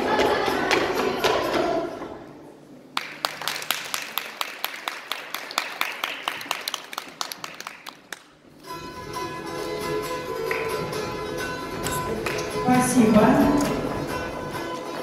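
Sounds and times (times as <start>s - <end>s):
folk ensemble singing: 0.0s - 2.4s
applause: 3.0s - 8.3s.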